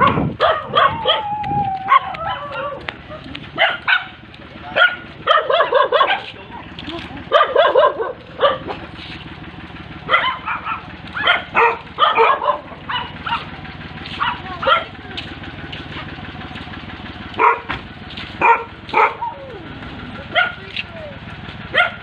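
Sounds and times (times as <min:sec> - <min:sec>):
dog barking: 0:00.0 - 0:01.3, 0:01.9 - 0:02.8, 0:03.6 - 0:06.4, 0:07.3 - 0:08.9, 0:10.1 - 0:13.5, 0:14.1 - 0:15.0, 0:17.4 - 0:17.8, 0:18.4 - 0:19.4, 0:20.3 - 0:20.7, 0:21.7 - 0:22.0
vehicle engine idling: 0:00.0 - 0:22.0.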